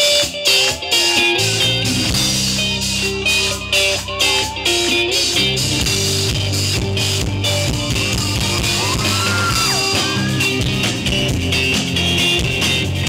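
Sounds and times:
rock band playing live: 0.0s - 13.0s.

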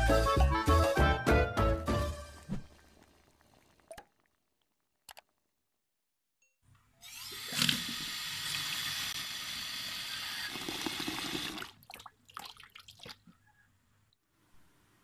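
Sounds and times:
water drips and splashes: 2.3s - 5.4s, 11.5s - 13.3s.

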